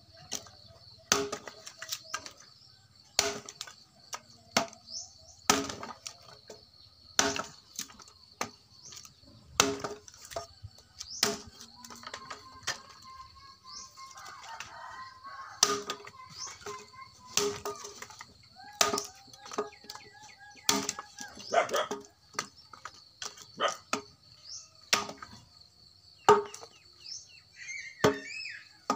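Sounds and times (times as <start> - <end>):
birds chirping: 0.0 - 5.5, 10.6 - 28.9
chopping dry wood: 0.3 - 2.4, 3.1 - 6.6, 7.2 - 13.0, 15.5 - 25.4, 26.2 - 26.8, 28.0 - 28.9.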